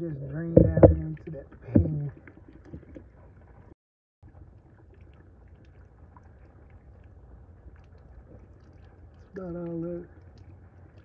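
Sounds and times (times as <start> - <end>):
coolant trickling into pan: 4.2 - 11.0.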